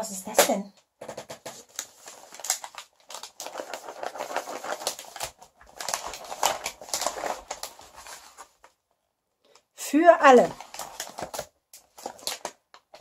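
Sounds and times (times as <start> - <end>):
paper wrapping crinkling: 1.4 - 8.8, 10.2 - 13.0.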